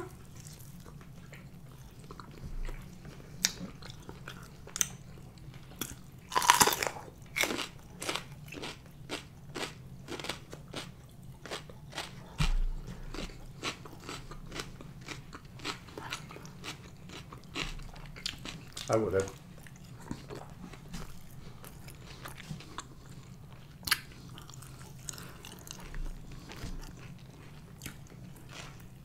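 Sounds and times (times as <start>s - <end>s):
crisp chewing crunches: 0.3s - 28.9s
person crunching pepper: 3.4s - 19.0s.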